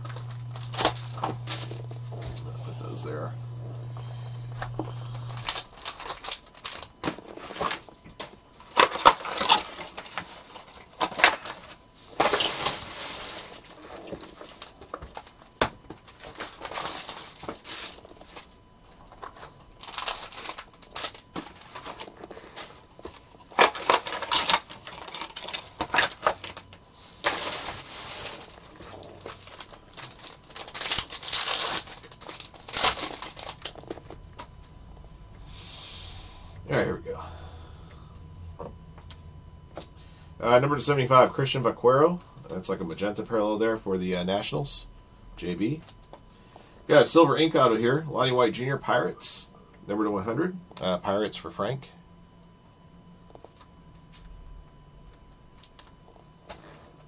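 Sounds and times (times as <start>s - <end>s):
packaging tearing and crinkling: 0.0s - 2.6s, 4.6s - 7.9s, 8.7s - 18.4s, 19.8s - 22.8s, 23.5s - 34.2s.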